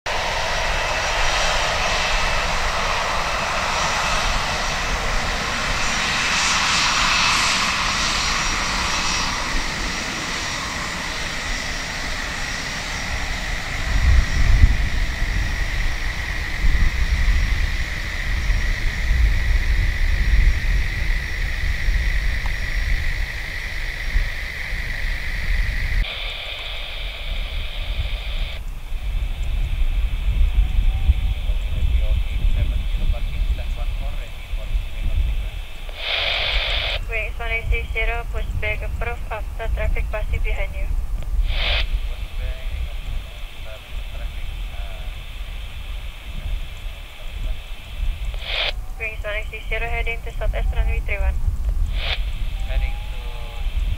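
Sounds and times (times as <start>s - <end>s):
jet engines whining: 0.1s - 53.9s
low uneven rumble: 27.4s - 53.9s.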